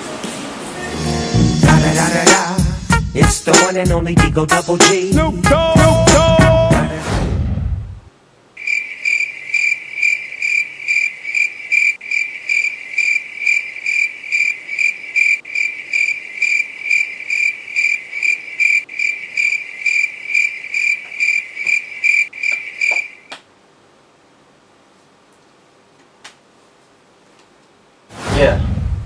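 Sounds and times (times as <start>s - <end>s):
cricket chirping: 8.6s - 23.3s.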